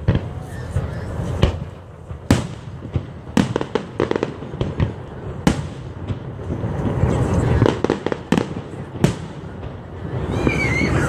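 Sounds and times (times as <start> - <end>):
fireworks bangs: 0.0 - 11.0
fireworks crackles: 0.0 - 11.0.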